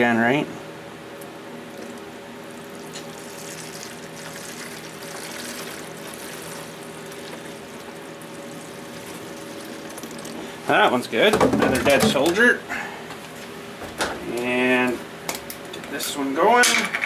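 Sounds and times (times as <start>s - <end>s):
water pouring into plastic jug: 2.6s - 10.5s.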